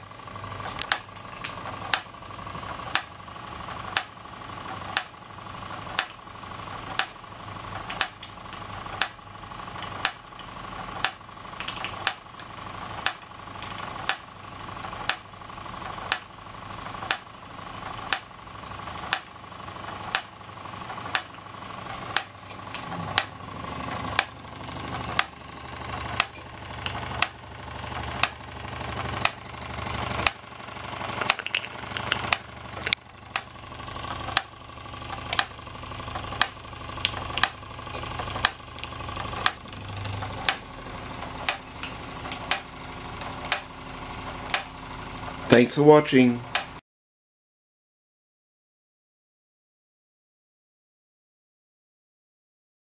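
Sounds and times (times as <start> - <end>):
toy steam engines running: 0.0 - 46.8
sharp click: 2.9 - 3.1, 7.9 - 8.4, 9.0 - 9.2, 9.8 - 12.2, 13.0 - 14.2, 18.1 - 18.3, 19.1 - 19.3, 35.2 - 35.6, 36.4 - 40.7, 41.4 - 42.7, 43.5 - 43.7, 44.5 - 44.7, 46.5 - 46.8.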